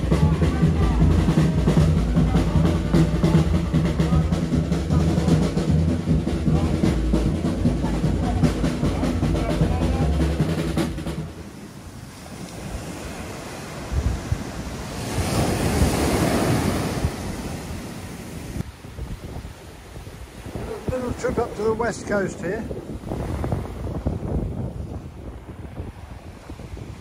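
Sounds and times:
loud music with drum beat: 0.0 - 11.3
surf washing onto beach: 0.0 - 27.0
wave breaking: 0.0 - 27.0
wind buffeting microphone: 0.0 - 27.0.

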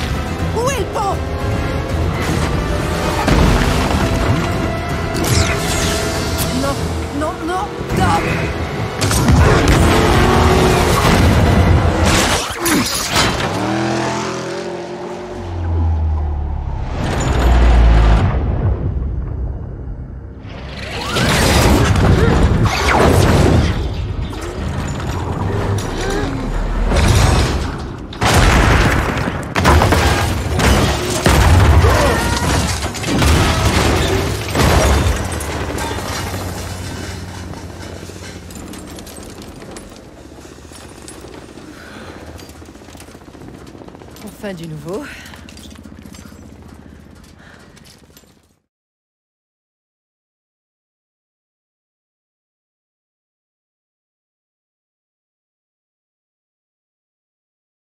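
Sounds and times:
low rumble: 15.6 - 20.8
metal crunching and scraping: 24.1 - 41.7.

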